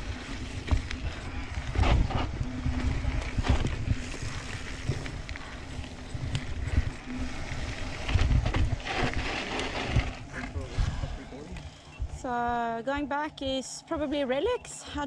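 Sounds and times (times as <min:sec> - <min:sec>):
bike knocks and rattles: 0:00.0 - 0:10.4
bike tyre rumble on dirt: 0:00.0 - 0:12.6.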